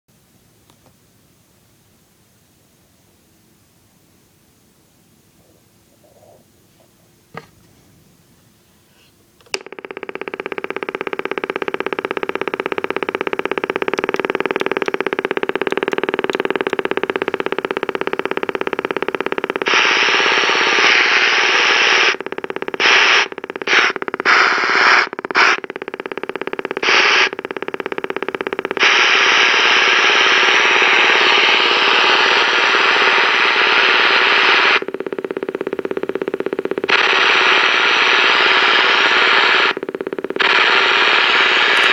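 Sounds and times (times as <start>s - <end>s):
radio speaker putt-putt pulsing: 9.4s - 41.9s
radio static hiss: 9.6s - 41.9s.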